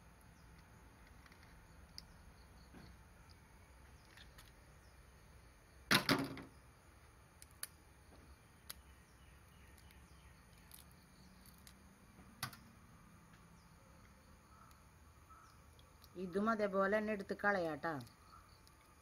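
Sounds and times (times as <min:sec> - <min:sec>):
crab shell cracking: 0:07.4 - 0:07.8, 0:08.6 - 0:11.8
small clicks: 0:08.6 - 0:11.8.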